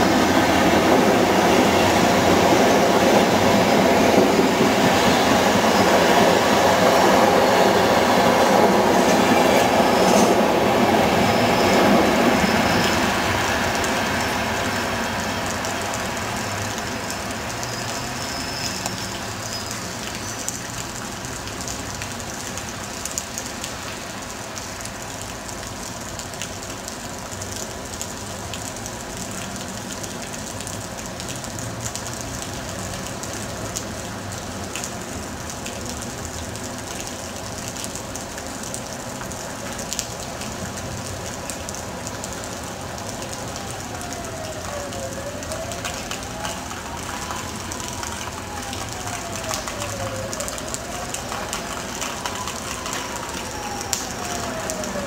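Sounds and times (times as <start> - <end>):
electric train rail noise: 0.0 - 15.7
distant train rumble: 0.0 - 17.3.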